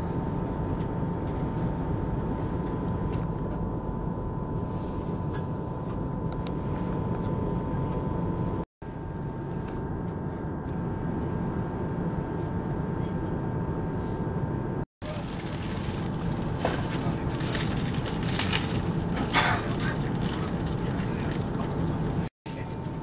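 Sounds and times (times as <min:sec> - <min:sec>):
train carriage interior rumble: 0:15.0 - 0:23.0.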